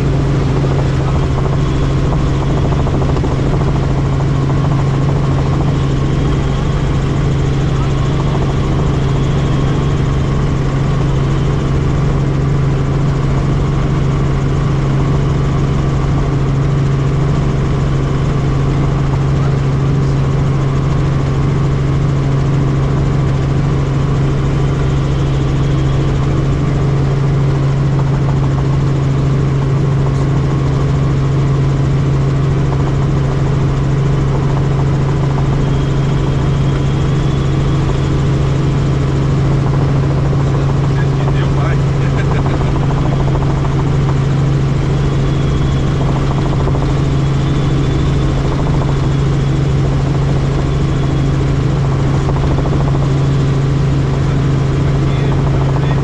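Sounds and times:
helicopter rotor and engine: 0.0 - 56.0.

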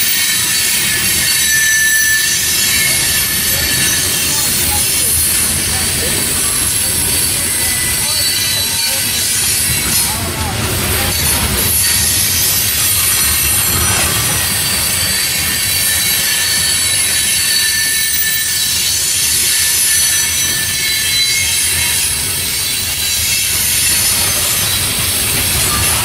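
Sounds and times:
train wheels rumbling on rail: 0.0 - 26.0
wheels squealing against rail: 0.0 - 26.0.

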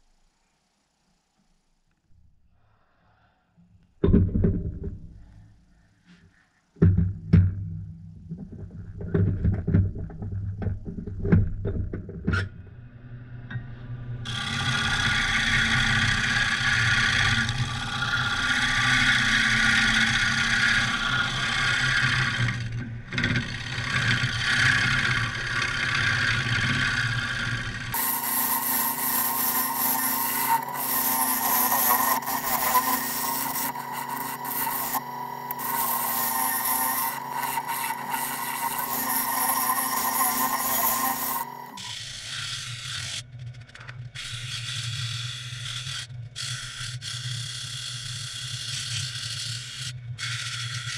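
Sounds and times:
low motor hum: 6.8 - 29.6
gouge scraping wood on lathe: 14.3 - 41.8.

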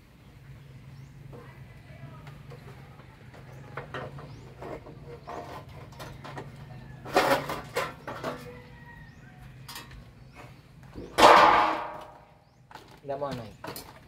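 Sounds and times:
metal knocks and scrapes: 2.5 - 8.9, 9.6 - 14.0.

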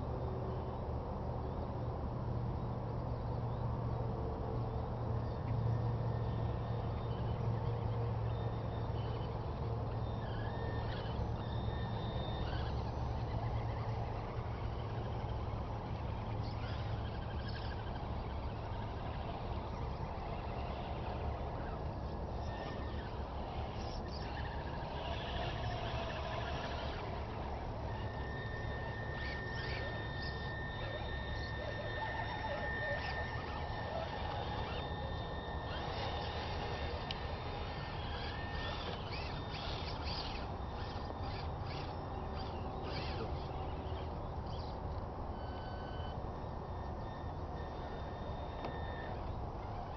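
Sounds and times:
electric motors and gears whining: 3.4 - 49.9
toy truck driving through mud: 5.7 - 49.9.

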